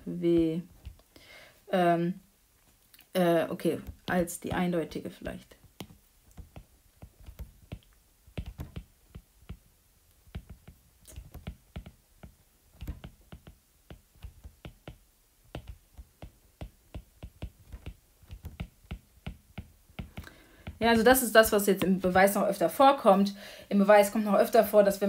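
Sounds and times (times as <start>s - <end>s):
stylus tapping on glass screen: 3.8s - 5.0s, 5.6s - 21.2s.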